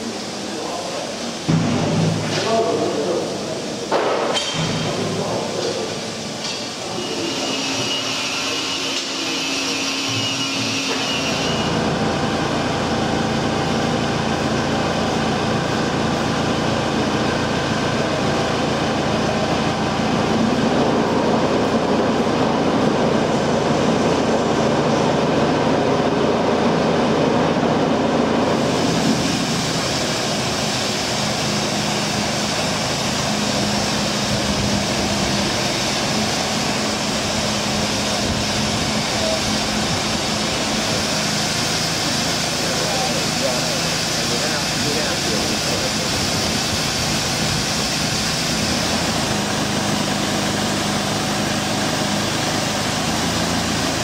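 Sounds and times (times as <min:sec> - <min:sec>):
crane diesel engine running: 0:05.1 - 0:54.0.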